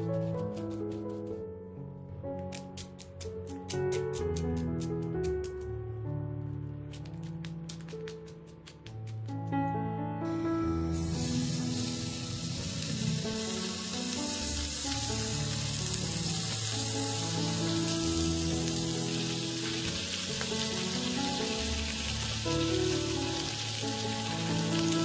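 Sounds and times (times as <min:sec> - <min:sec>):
meat sizzling in a frying pan: 0:10.9 - 0:25.0.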